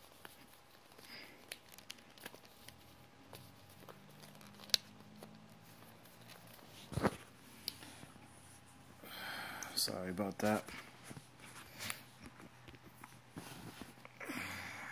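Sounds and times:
smartwatch handling clicks and rustles: 0:00.2 - 0:08.0.

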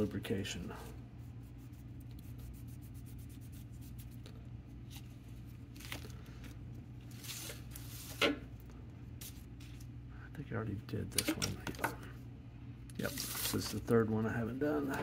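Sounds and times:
cloth rubbing plastic: 0:13.1 - 0:14.0.

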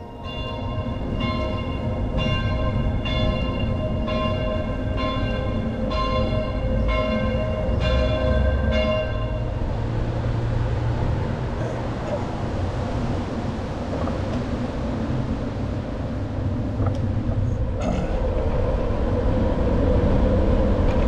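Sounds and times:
church bell striking: 0:00.0 - 0:09.8
low rumble: 0:00.0 - 0:21.0.

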